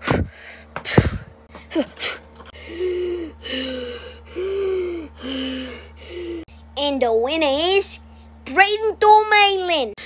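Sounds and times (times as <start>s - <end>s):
boy groaning: 1.7s - 6.5s.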